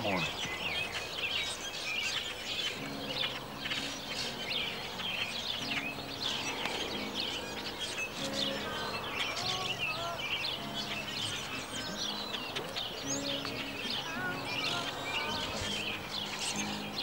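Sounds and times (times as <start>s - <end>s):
small birds chirping: 0.0s - 17.0s
acoustic guitar low notes: 2.8s - 17.0s.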